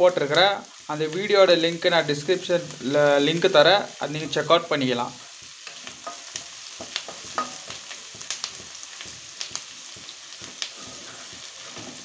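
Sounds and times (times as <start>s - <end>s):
vegetables sizzling in hot oil: 0.0s - 12.0s
spatula scraping and tapping pan: 5.4s - 12.0s.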